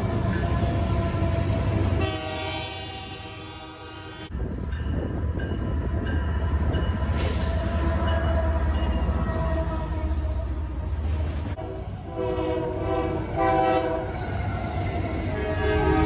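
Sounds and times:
locomotive horn chord: 0.0 - 4.3, 11.6 - 14.2, 15.4 - 16.0
diesel locomotive engine rumble: 0.0 - 16.0
freight train rumbling past: 0.0 - 16.0.

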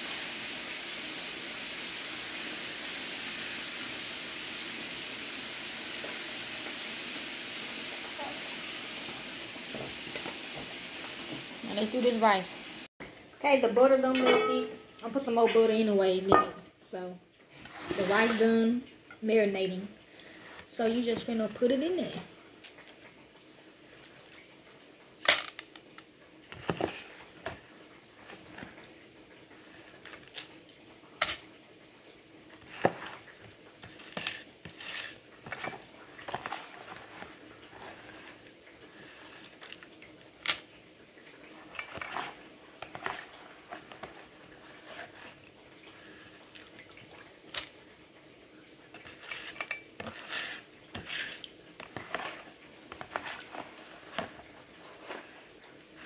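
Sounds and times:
metal spoon clinking and scraping: 49.1 - 50.4.

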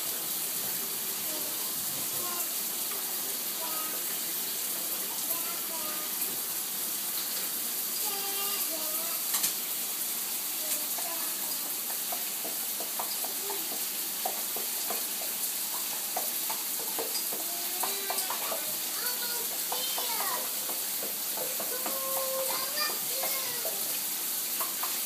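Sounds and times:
shower spray hissing: 0.0 - 25.0
small splashes and taps: 7.1 - 9.7, 10.6 - 25.0.

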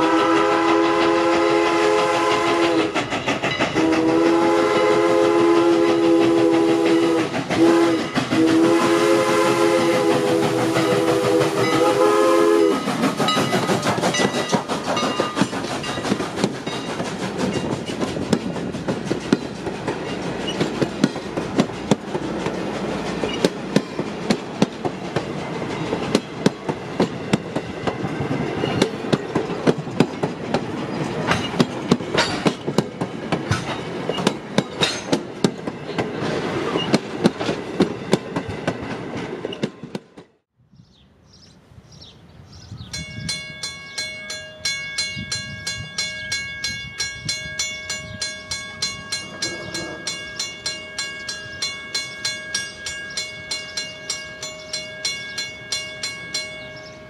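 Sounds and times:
train wheels clicking over rail joints: 0.1 - 40.4.

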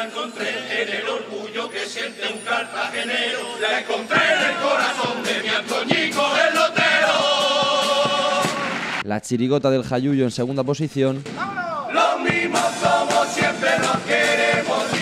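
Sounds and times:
men singing in unison: 0.0 - 8.8, 11.9 - 15.0.

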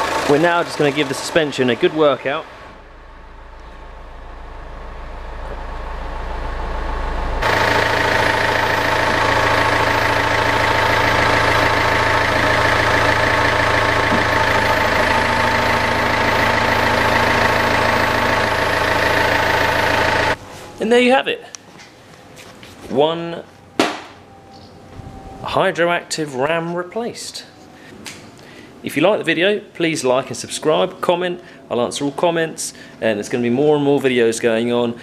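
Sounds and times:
car engine running with whine: 0.0 - 20.5.

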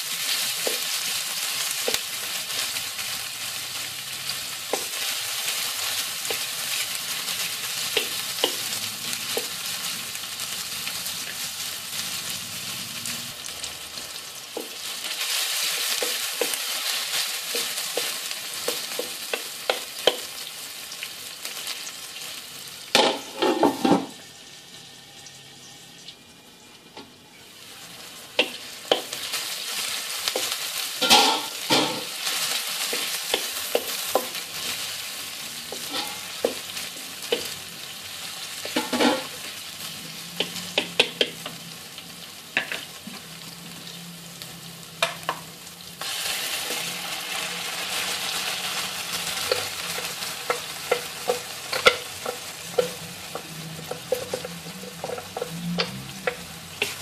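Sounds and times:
onions sizzling in hot oil: 0.0 - 57.0
spatula scraping and clacking on wok: 4.7 - 9.9, 14.0 - 20.4, 28.3 - 35.0, 35.7 - 37.6, 38.6 - 39.6, 40.2 - 41.6, 46.0 - 57.0.

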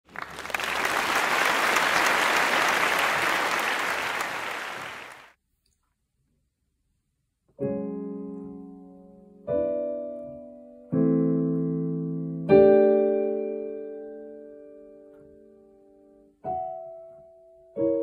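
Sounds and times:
audience clapping: 0.0 - 5.4.

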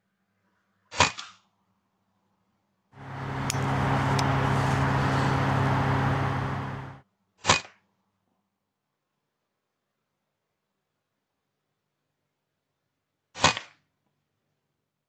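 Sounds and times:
mechanical hum with hiss: 3.0 - 7.0.

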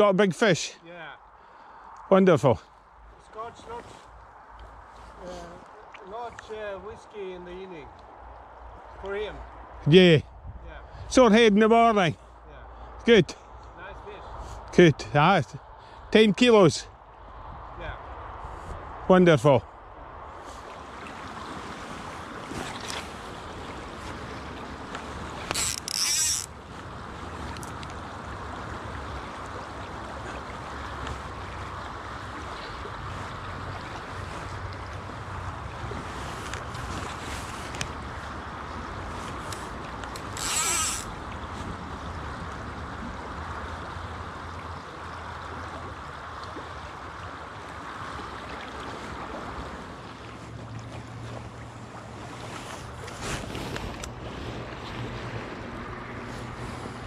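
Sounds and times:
river water running: 0.0 - 57.0
wind on microphone: 8.2 - 11.2, 17.2 - 44.3
loud high hissing rasp: 40.4 - 41.1.

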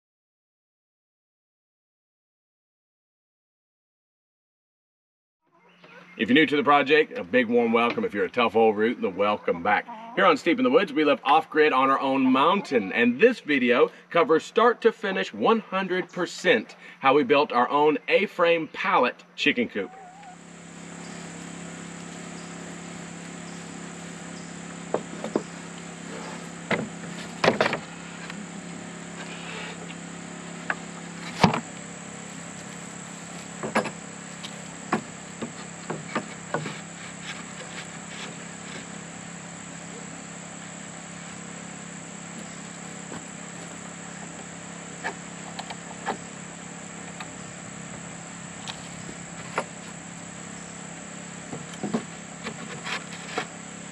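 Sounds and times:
insects buzzing: 19.8 - 53.9
wooden boards knocking: 26.7 - 27.8.

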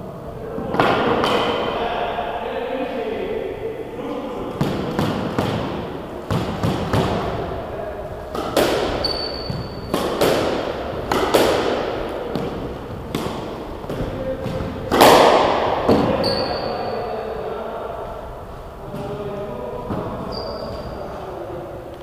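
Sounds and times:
squash ball hits echoing: 0.6 - 1.8, 4.4 - 17.2
shoes squeaking on wooden floor: 8.8 - 10.0, 15.9 - 17.1, 19.8 - 21.2.

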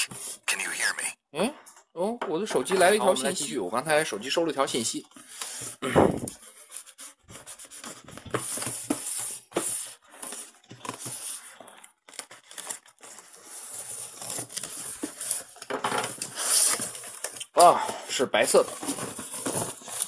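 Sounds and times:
plastic wrapping crinkling: 7.4 - 17.7.

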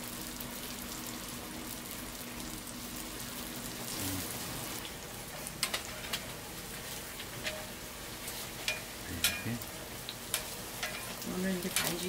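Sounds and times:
pancakes sizzling in oil: 0.0 - 12.0
metal tongs clicking on griddle: 8.7 - 9.6, 10.3 - 12.0.

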